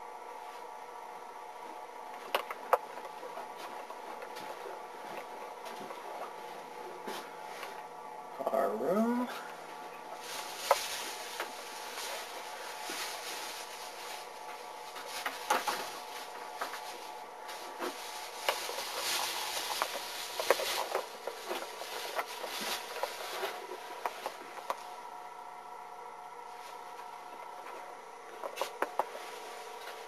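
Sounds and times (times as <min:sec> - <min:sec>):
faint steady hum: 0:00.0 - 0:30.0
rustling: 0:09.3 - 0:25.1.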